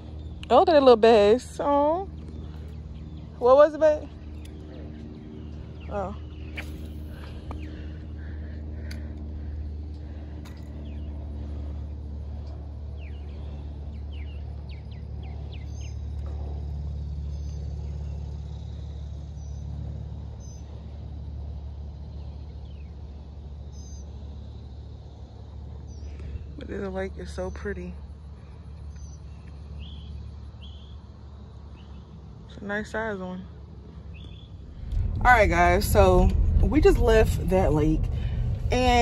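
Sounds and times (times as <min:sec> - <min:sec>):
wind rumbling on microphone: 0:33.6 - 0:39.0.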